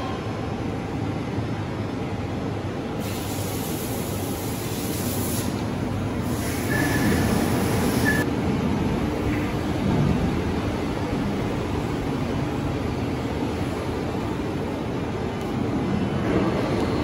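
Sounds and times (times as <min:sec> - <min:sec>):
high hiss: 0:06.2 - 0:08.2.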